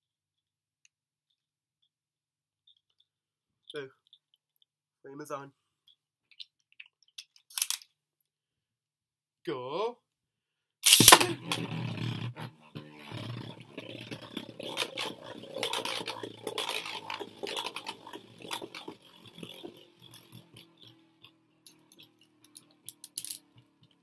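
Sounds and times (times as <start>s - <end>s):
spinning top landing clack: 10.8s - 23.8s
spinning top scraping whir: 10.8s - 24.0s.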